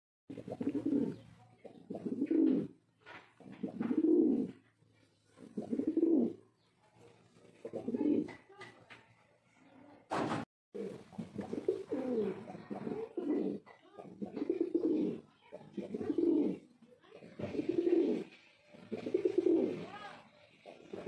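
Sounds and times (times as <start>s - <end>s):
pigeon cooing: 0.3s - 2.8s, 3.4s - 4.7s, 5.4s - 6.5s, 7.3s - 8.5s, 10.8s - 21.0s.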